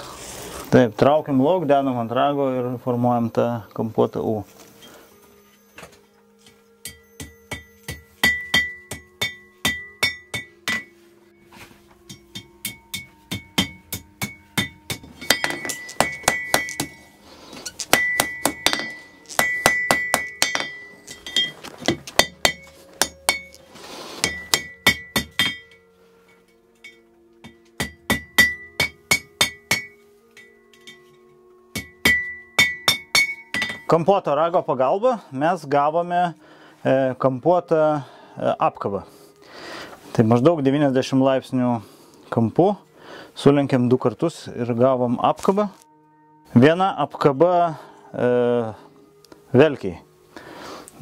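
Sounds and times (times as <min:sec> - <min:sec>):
anvil ringing: 0:06.8 - 0:11.0, 0:12.1 - 0:17.1, 0:17.8 - 0:23.6, 0:24.2 - 0:25.8, 0:26.8 - 0:34.0
hammer striking iron on anvil: 0:06.8 - 0:11.0, 0:12.1 - 0:17.0, 0:17.8 - 0:23.6, 0:24.2 - 0:25.8, 0:26.8 - 0:34.0.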